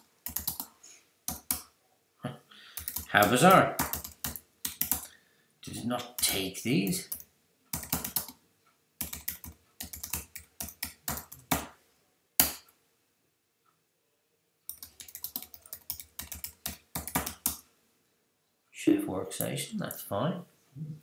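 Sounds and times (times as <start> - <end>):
typing on keyboard: 0.0 - 0.7, 1.3 - 1.7, 2.8 - 5.1, 6.2 - 8.4, 9.0 - 11.7, 14.7 - 17.6.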